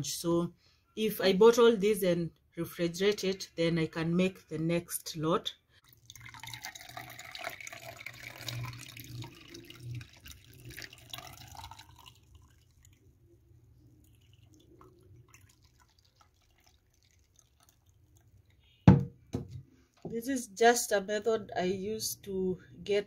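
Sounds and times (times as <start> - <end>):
liquid pouring through cloth strainer: 5.8 - 18.8.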